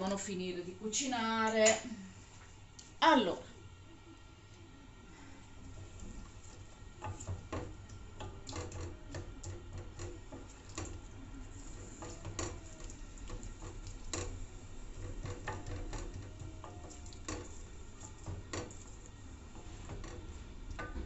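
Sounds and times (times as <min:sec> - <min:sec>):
onion sizzling in oil: 0:05.7 - 0:21.0.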